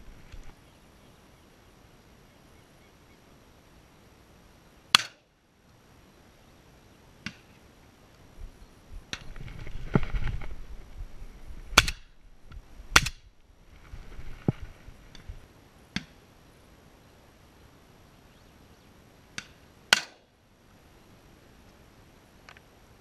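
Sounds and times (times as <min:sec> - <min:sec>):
rumbling handling noise: 0:09.0 - 0:15.4
sharp knocks and cracks: 0:19.4 - 0:20.2.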